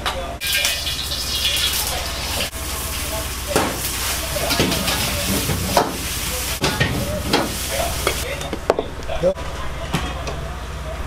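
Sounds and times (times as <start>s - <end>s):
wok sizzling: 0.4s - 8.3s.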